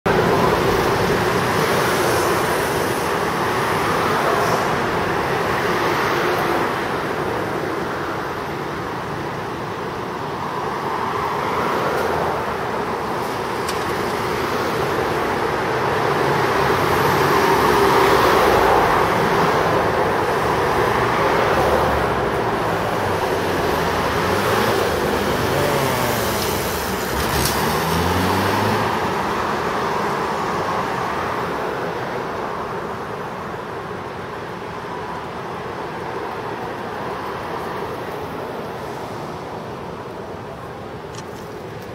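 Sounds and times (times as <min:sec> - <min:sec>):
passing traffic: 0:00.1 - 0:41.9
vehicle engine accelerating: 0:23.4 - 0:29.2.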